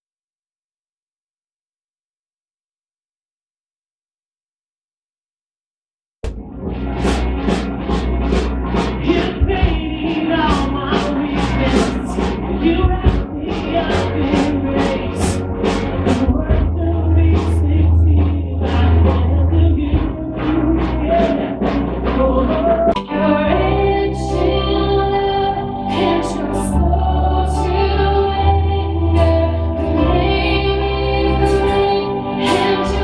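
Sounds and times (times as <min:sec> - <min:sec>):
rock band playing: 0:06.2 - 0:33.0
group singing: 0:09.0 - 0:33.0.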